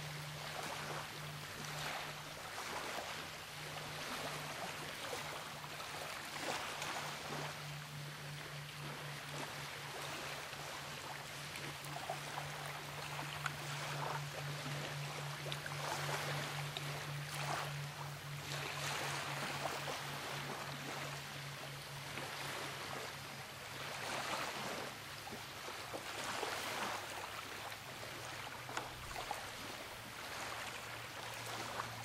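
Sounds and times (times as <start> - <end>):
waves washing on shore: 0.0 - 21.2, 22.1 - 32.0
low hum: 0.0 - 23.9.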